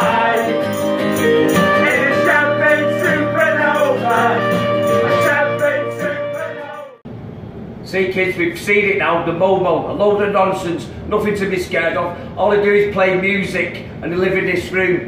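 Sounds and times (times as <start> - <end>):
guitar: 0.0 - 7.0
man singing rock song: 0.0 - 7.0.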